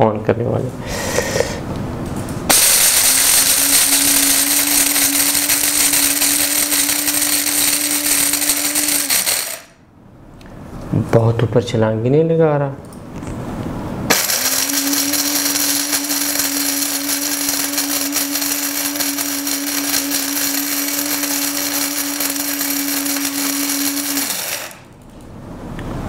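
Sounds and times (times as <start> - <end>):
beans rattling in grinder: 2.5 - 9.8, 14.1 - 24.9
coffee grinder motor whine: 2.5 - 9.8, 14.1 - 24.9.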